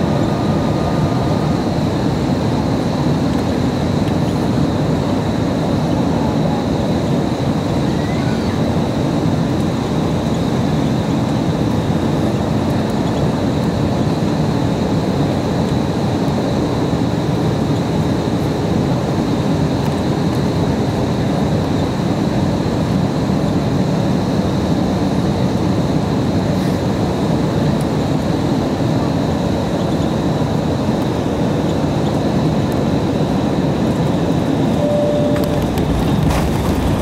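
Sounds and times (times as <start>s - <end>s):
airflow and engine rumble: 0.0s - 37.0s
thin high whine: 34.7s - 36.4s.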